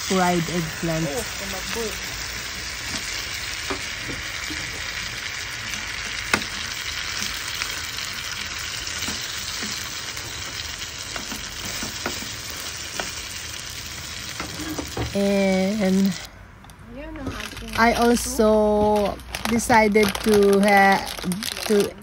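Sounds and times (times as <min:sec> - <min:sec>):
omelette sizzling in oil: 0:00.0 - 0:16.3.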